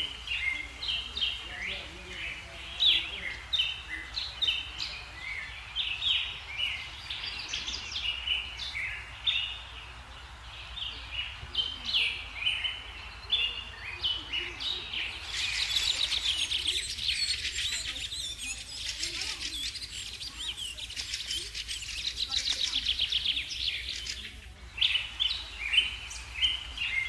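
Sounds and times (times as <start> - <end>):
fast high chatter: 0.0 - 8.6, 11.6 - 26.4
songbirds chirping: 0.0 - 27.0.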